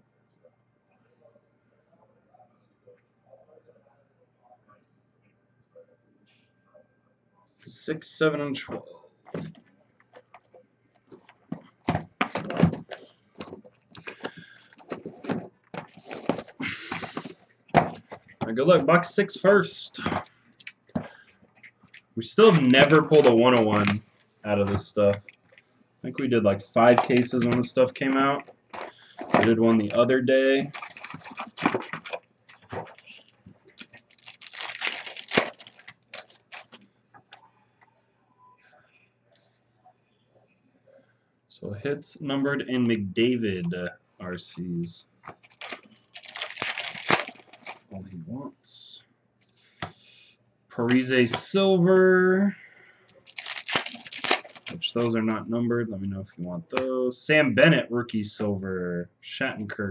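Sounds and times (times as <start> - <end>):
foil wrapper crinkling: 14.0 - 17.3, 22.4 - 24.2, 26.8 - 36.8, 45.3 - 47.8, 53.1 - 55.1
foil ripping: 30.6 - 36.8, 45.4 - 47.8, 53.1 - 55.0.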